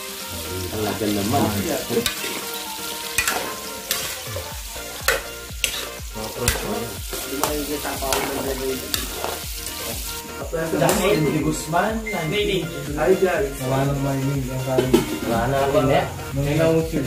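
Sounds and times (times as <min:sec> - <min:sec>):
vegetables sizzling in hot oil: 0:00.0 - 0:17.0
metal spatula scraping a wok: 0:01.8 - 0:07.2.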